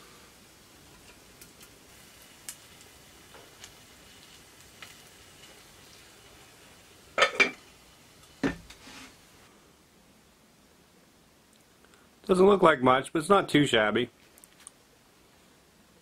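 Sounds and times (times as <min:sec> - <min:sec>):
cookware clatter: 0:07.2 - 0:07.6.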